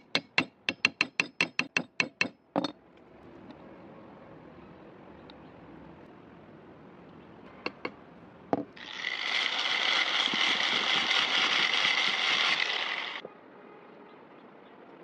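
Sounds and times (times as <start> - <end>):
power sander sanding wood: 8.8 - 13.2.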